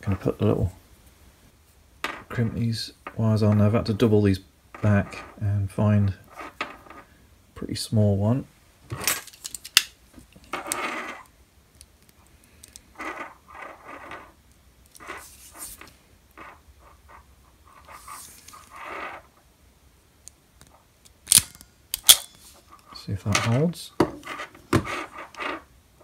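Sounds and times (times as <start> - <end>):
wire ends handled with clicks: 9.2 - 10.5, 11.8 - 12.8.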